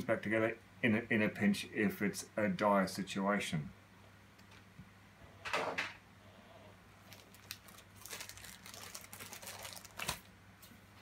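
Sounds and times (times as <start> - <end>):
plastic clicks and crinkles: 7.0 - 10.3
plastic packaging rustle: 7.0 - 10.3.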